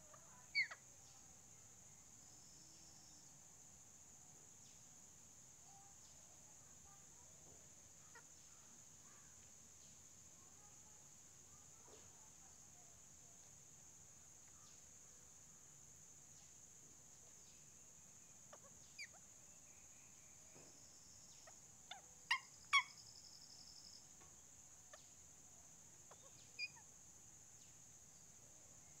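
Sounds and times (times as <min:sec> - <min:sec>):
parakeets calling: 0:00.5 - 0:00.8.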